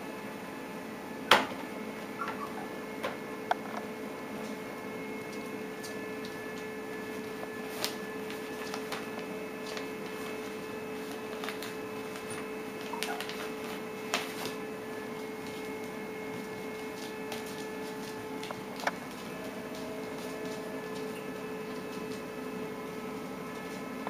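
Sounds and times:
steady electrical hum: 0.0s - 24.0s
claws tapping on plastic wrap: 5.3s - 14.6s, 15.2s - 22.2s.

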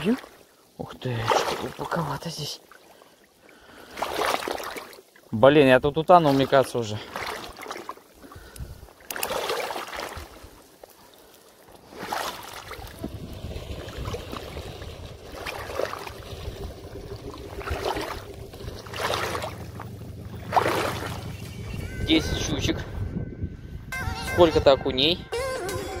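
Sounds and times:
water sloshing from wading: 0.0s - 23.0s.

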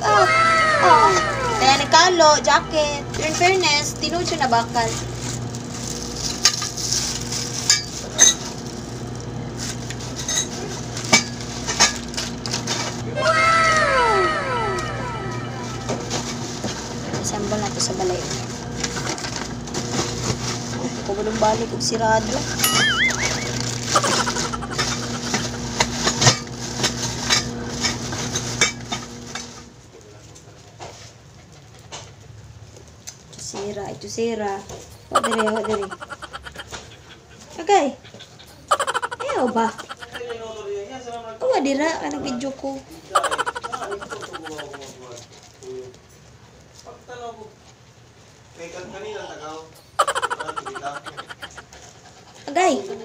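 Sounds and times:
steady low hum: 0.0s - 27.9s
plastic wrapping crinkling: 4.9s - 9.0s.

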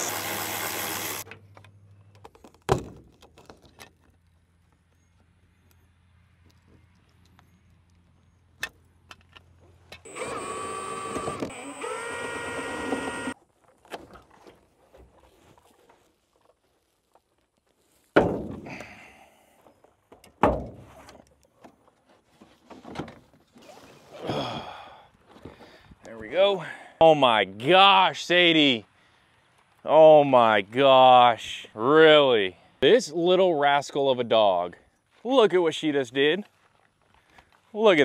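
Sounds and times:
power driver whining: 0.0s - 1.4s, 9.9s - 13.4s.

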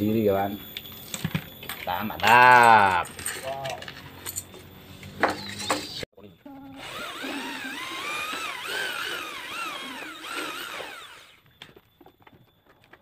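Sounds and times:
electric hand drill running: 6.8s - 11.8s.

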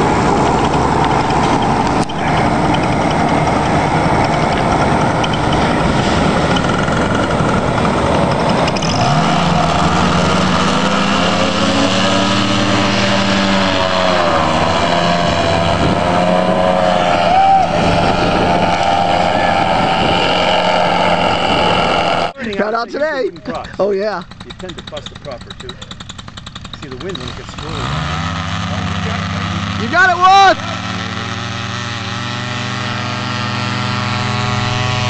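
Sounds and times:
loud rushing noise: 0.0s - 22.4s
paramotor engine droning: 0.0s - 35.0s.

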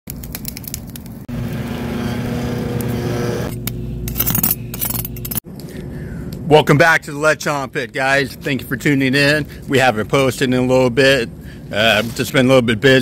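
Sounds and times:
sharp crackling clicks: 0.1s - 1.2s
charcoal fire crackling: 0.1s - 3.2s
steady motor-like hum: 1.3s - 11.8s.

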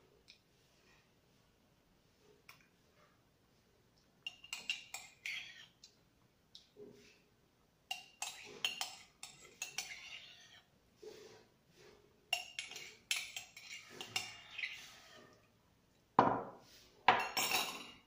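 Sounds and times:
spoon scraping inside ceramic mug: 4.3s - 5.7s, 7.9s - 10.7s, 12.4s - 15.3s.

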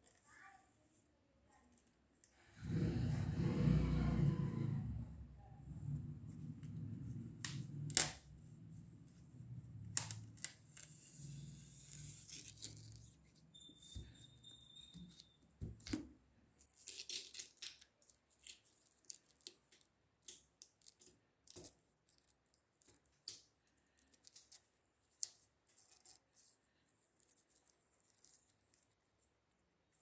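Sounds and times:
book pages rustling: 10.0s - 14.2s.

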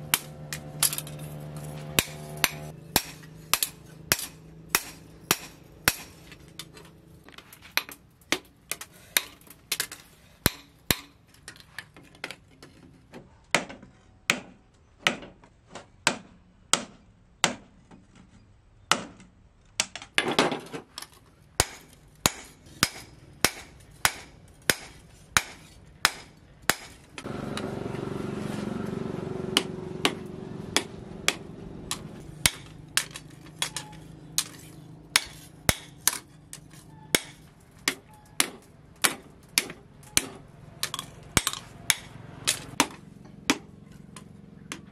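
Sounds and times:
hammer striking steel blade: 0.0s - 6.4s
low hum: 27.2s - 36.0s.

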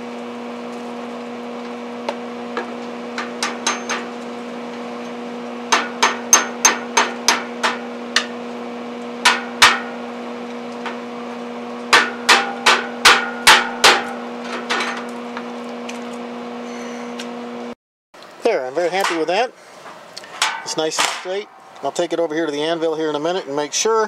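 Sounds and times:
steady low hum: 0.0s - 24.0s
hammer striking steel: 3.2s - 4.1s, 5.7s - 8.3s, 9.2s - 10.0s, 11.9s - 15.0s, 20.4s - 21.9s.

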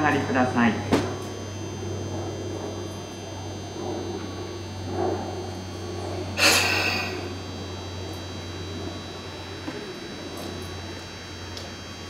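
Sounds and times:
low electrical hum: 0.0s - 12.0s
short loud hiss: 6.4s - 7.2s.

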